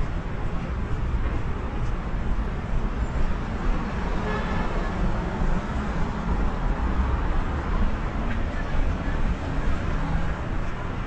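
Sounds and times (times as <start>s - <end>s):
rumble of street traffic: 0.0s - 11.0s.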